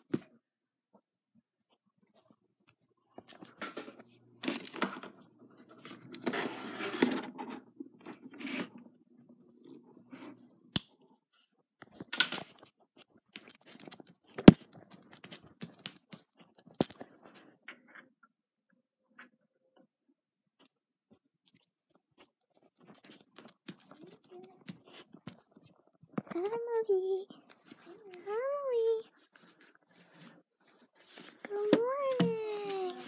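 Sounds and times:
rustling handling noises: 22.1s - 33.0s.

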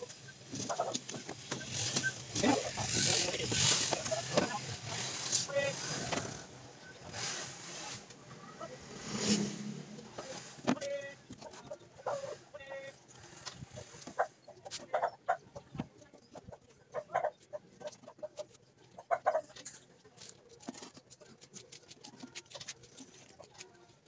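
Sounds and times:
chickens clucking: 0.0s - 6.2s, 10.2s - 20.0s.

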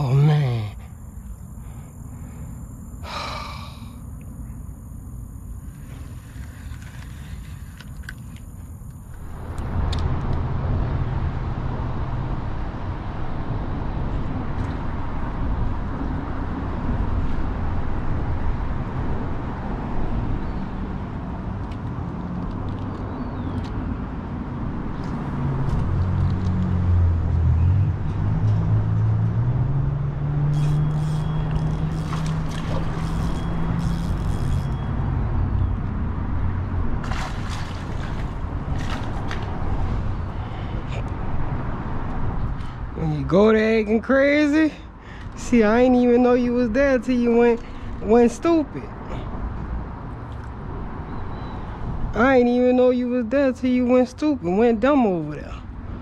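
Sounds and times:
vehicle engine droning: 0.0s - 43.8s
road traffic rumble: 0.0s - 56.0s.

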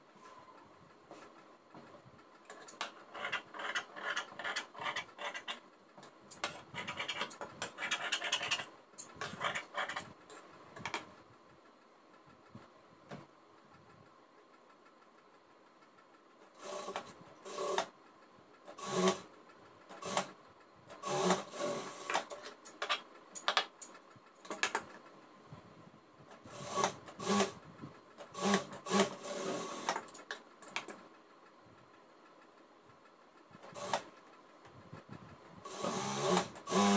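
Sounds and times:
sewing machine stitching: 16.5s - 17.9s, 18.7s - 22.5s, 26.4s - 27.6s, 28.2s - 30.2s, 33.6s - 34.2s, 35.7s - 36.9s.

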